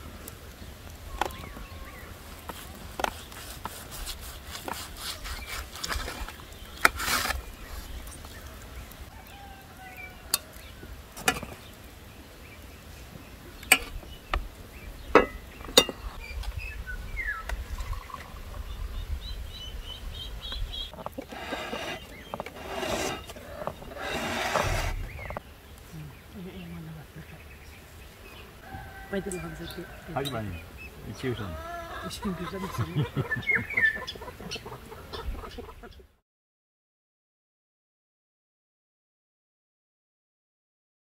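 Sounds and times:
birds chirping: 0.0s - 36.2s
metal utensils clinking on plates: 15.2s - 16.0s.

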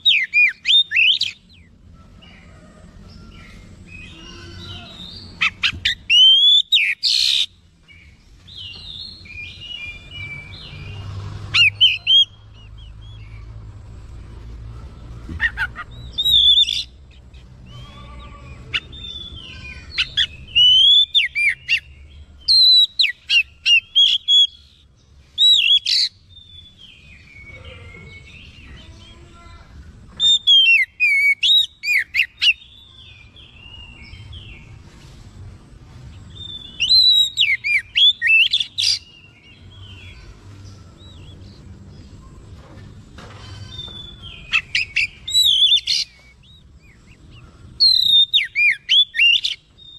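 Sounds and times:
bird singing whistled notes: 0.0s - 1.6s, 3.3s - 10.9s, 16.0s - 17.0s, 18.7s - 27.5s, 30.2s - 34.6s, 36.4s - 39.2s, 43.7s - 47.2s, 47.8s - 49.9s.

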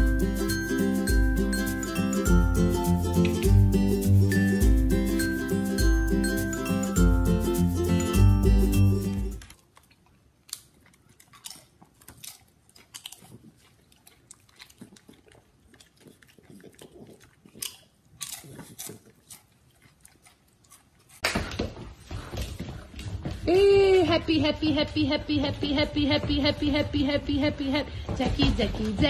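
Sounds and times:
person chewing crunchy snack: 9.4s - 21.3s.

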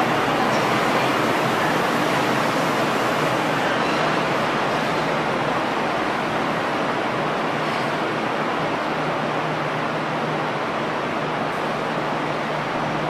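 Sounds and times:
electric train rolling past: 0.0s - 7.3s.

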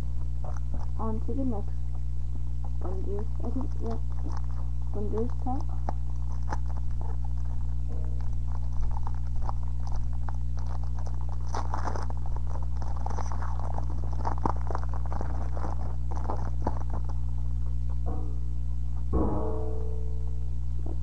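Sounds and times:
low electrical hum: 0.0s - 21.0s
foil wrapper crinkling and tearing: 3.2s - 17.7s.

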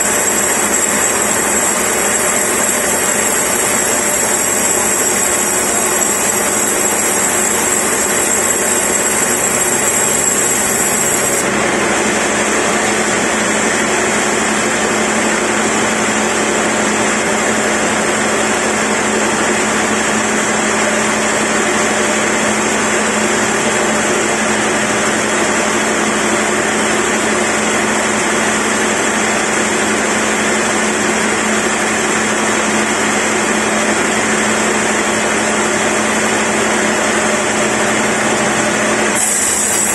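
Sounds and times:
band saw cutting log: 0.0s - 11.5s, 38.2s - 39.9s.

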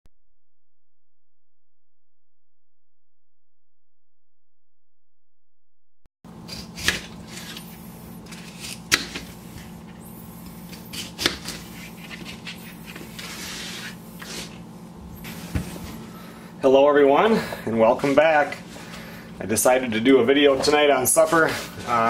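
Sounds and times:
steady low hum: 6.3s - 22.0s
knife cutting potatoes: 6.4s - 14.6s.

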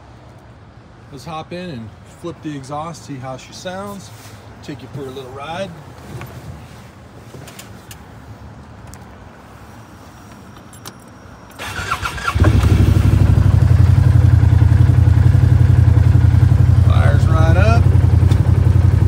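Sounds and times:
engine cranking and idling: 11.5s - 19.0s
engine idling loud: 12.4s - 19.0s.

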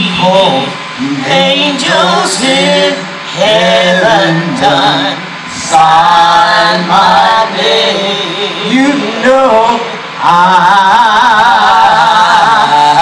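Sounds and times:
voices singing gospel: 0.0s - 13.0s.

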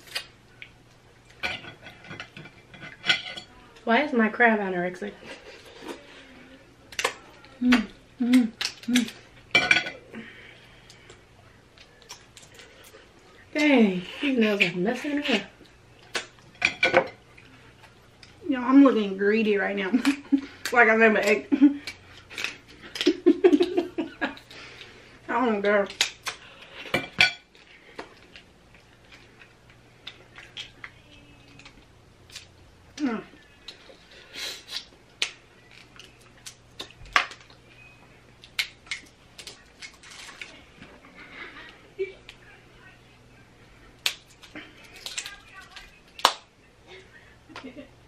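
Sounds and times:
person humming while eating: 7.2s - 9.2s
crab legs cracking: 38.4s - 40.5s, 44.0s - 46.5s.

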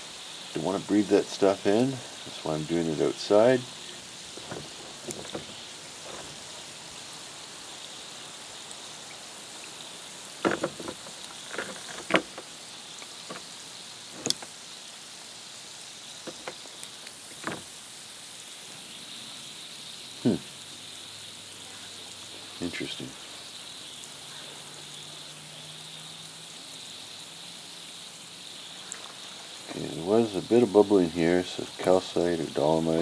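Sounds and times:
acid fizzing with bubbles: 0.0s - 33.0s
stick knocking and splashing: 10.4s - 12.5s.

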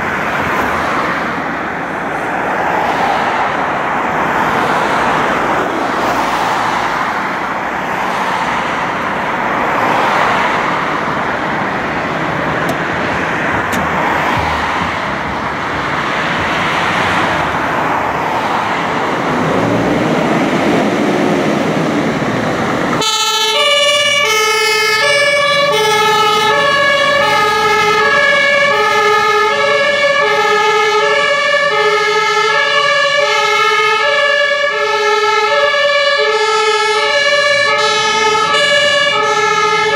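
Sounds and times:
street noise: 0.0s - 39.9s
diesel truck engine pulling away: 10.6s - 39.9s
two-tone siren: 23.0s - 39.9s.

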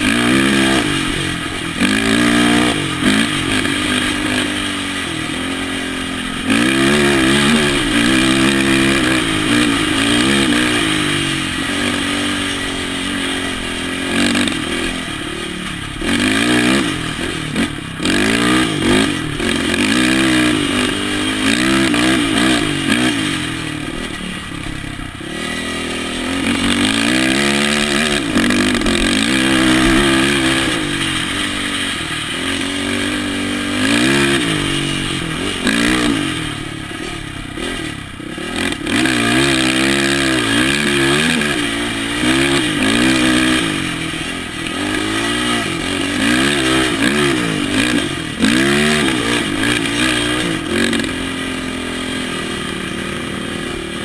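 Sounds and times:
quad engine revving: 0.0s - 54.0s.

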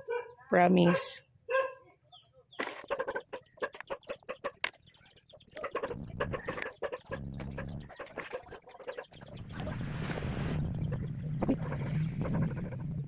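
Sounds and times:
chicken clucking: 1.5s - 9.8s.

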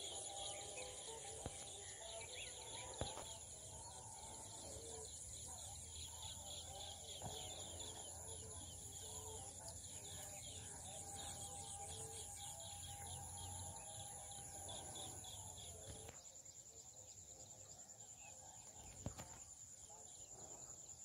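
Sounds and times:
pulsing insect trill: 0.0s - 17.8s.

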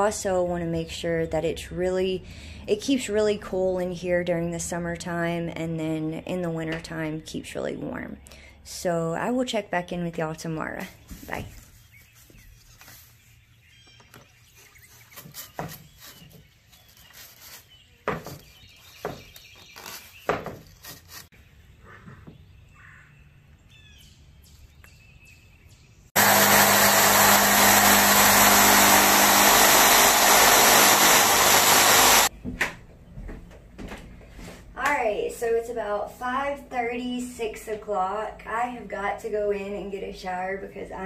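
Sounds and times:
birds chirping: 11.4s - 20.4s
power tool running: 26.2s - 32.3s.

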